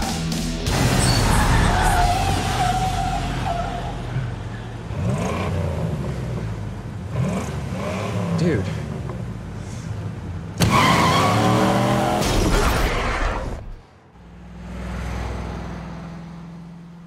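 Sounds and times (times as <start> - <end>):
car tyres squealing: 0.8 - 4.7, 10.6 - 13.6.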